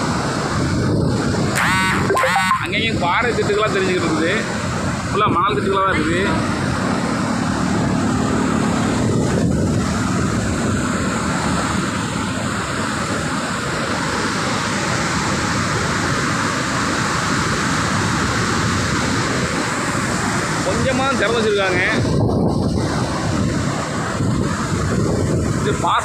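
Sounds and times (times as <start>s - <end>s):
water rushing over weir: 0.0s - 26.0s
wind buffeting microphone: 0.0s - 26.0s.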